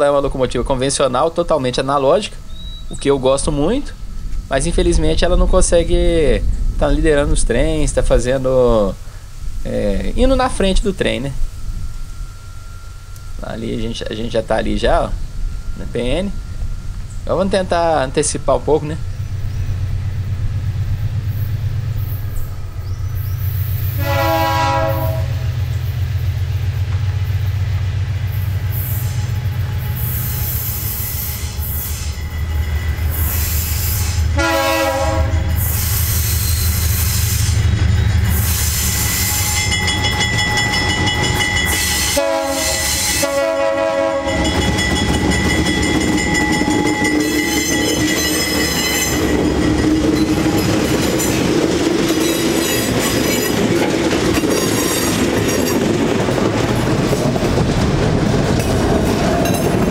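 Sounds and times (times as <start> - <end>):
locomotive low drone: 0.0 - 59.9
rumble of passing wagons: 0.0 - 59.9
high steady squealing: 9.5 - 24.1, 24.8 - 43.5, 44.2 - 56.0
train horn blasts: 23.7 - 25.6, 28.7 - 37.6, 38.3 - 49.3.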